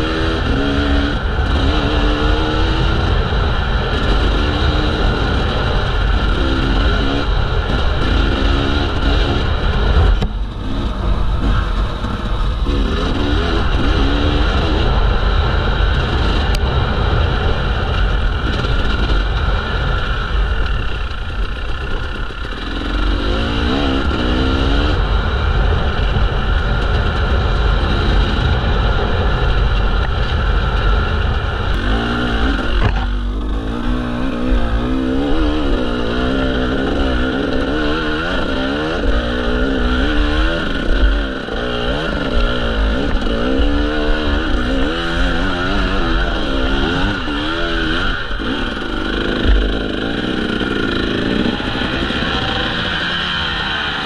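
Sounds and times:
dirt bike engine revving: 0.0 - 54.0
steady low rumble: 0.0 - 54.0.

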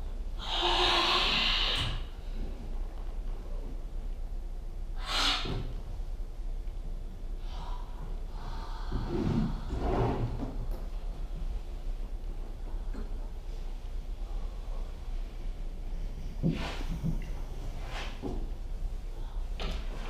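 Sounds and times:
person breathing heavily: 7.4 - 10.0.

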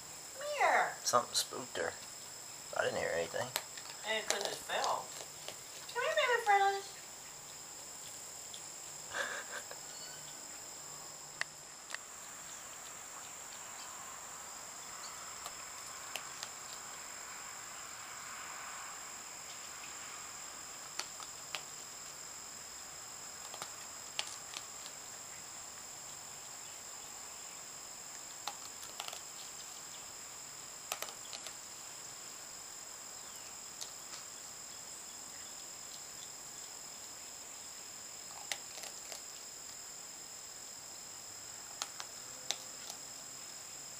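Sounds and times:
insects trilling: 0.0 - 43.9.

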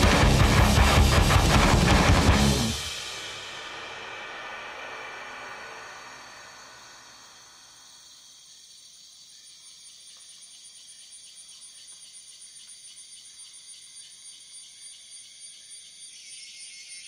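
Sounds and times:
music with drums: 0.0 - 5.9
crickets chirping: 2.8 - 17.0.

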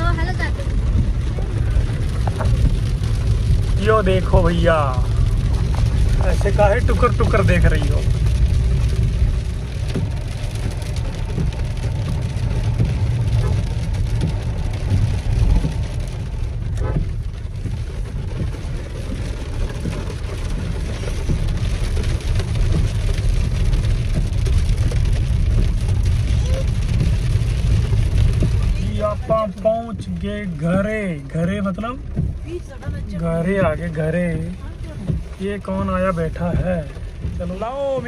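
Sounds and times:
engine and tyres rumbling: 0.0 - 38.0
rain on car body: 0.0 - 38.0.

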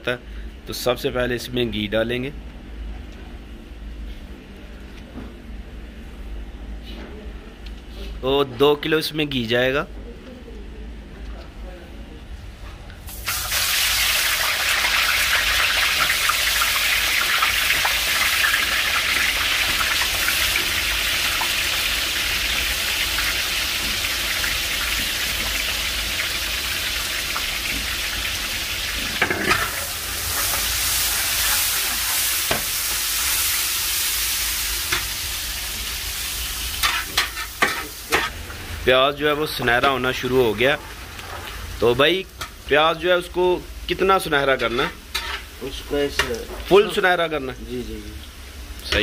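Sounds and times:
onions sizzling in hot oil: 13.1 - 49.0.

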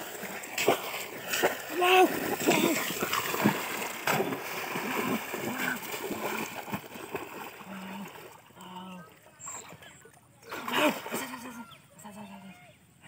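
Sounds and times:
muddy water splashing: 0.0 - 12.3.

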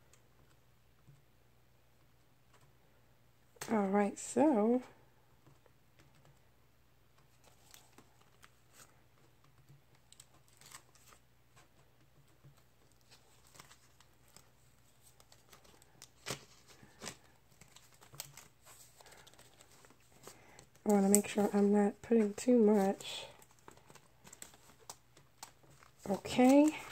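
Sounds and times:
paper and plastic rustling: 7.2 - 26.9.

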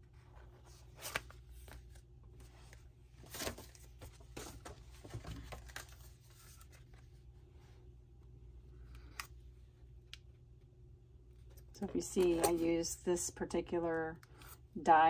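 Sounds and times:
paper cards rustling and tapping: 2.6 - 7.0, 11.4 - 12.7.

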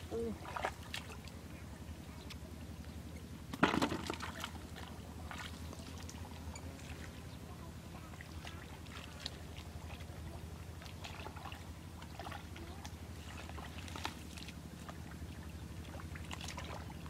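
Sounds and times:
hands splashing in muddy water: 10.8 - 17.0.

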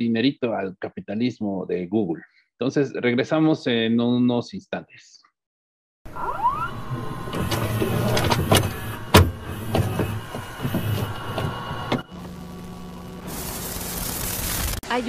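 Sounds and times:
low hum: 6.1 - 14.8
glitchy machine-like whirring: 6.1 - 15.0.

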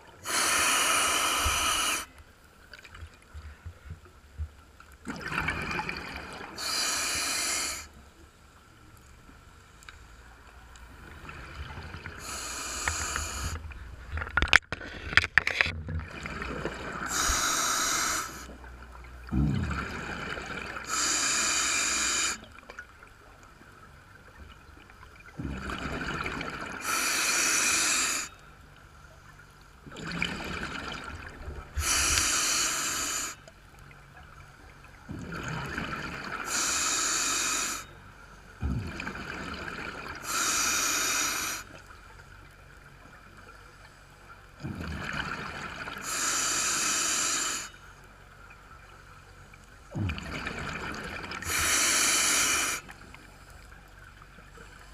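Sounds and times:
regulator breathing hiss: 0.2 - 2.1, 6.6 - 7.9, 12.2 - 13.6, 17.1 - 18.5, 20.9 - 22.4, 26.8 - 28.3, 31.8 - 33.4, 36.5 - 37.8, 40.2 - 41.8, 46.0 - 47.8, 51.4 - 52.9
exhaled bubbles rushing: 5.1 - 6.6, 15.8 - 17.3, 25.4 - 26.8, 35.1 - 36.4, 49.9 - 51.6.

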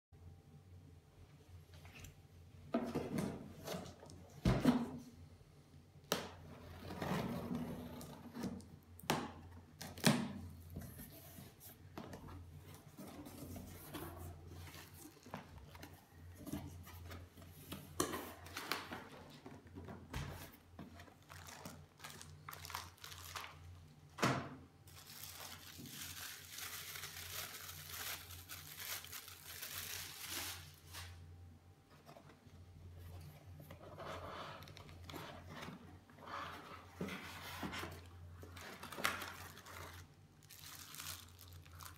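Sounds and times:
plastic wrap tearing and crinkling: 21.0 - 24.0, 24.8 - 31.2, 38.5 - 41.9.

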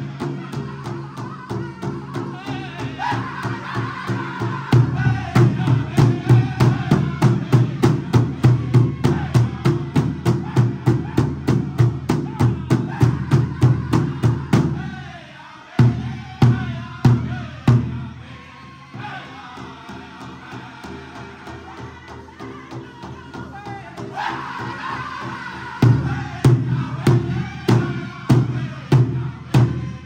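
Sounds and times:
big drum beating: 0.0 - 15.0, 23.0 - 30.0
men singing: 0.0 - 30.0.

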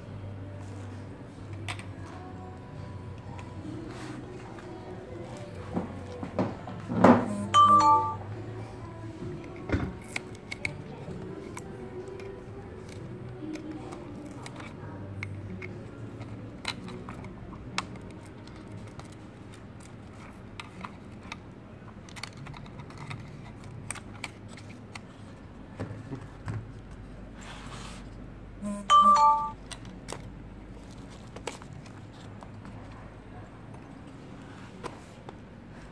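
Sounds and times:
low steady hum: 0.0 - 35.9
two-note tone: 7.3 - 8.3, 28.6 - 29.6
hands clicking on plastic parts: 9.4 - 25.1.

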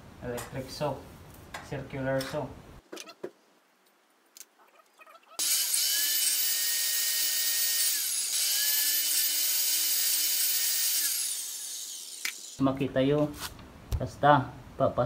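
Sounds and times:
circular saw cutting wood: 5.4 - 12.6.

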